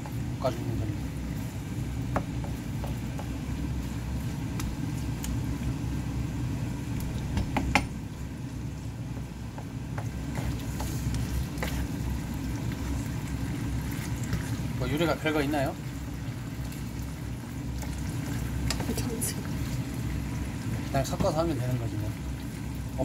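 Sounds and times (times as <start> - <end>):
steady low hum: 0.0 - 23.0
wooden spoon scraping frying pan: 10.0 - 12.1.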